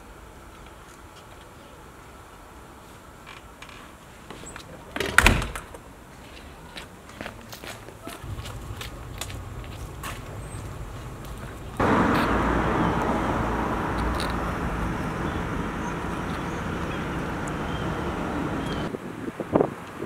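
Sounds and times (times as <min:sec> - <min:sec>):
road traffic rushing: 0:08.2 - 0:19.7.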